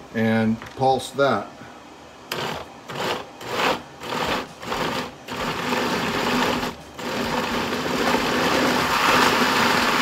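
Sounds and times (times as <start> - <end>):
blender motor running: 2.3 - 10.0.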